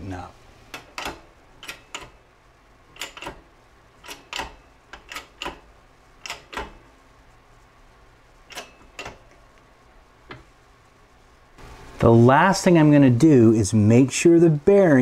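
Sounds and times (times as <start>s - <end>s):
shop press clicking: 0.7s - 2.2s, 2.9s - 6.9s, 8.5s - 9.4s.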